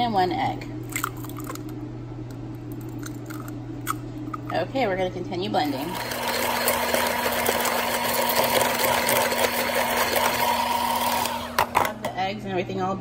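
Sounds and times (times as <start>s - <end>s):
electric hand mixer running: 5.6s - 12.1s.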